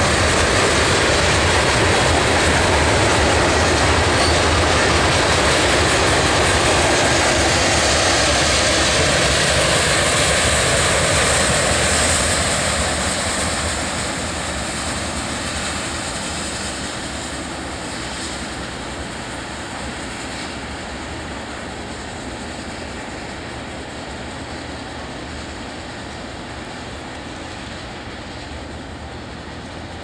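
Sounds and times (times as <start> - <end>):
train wheels on rail: 0.0 - 30.0.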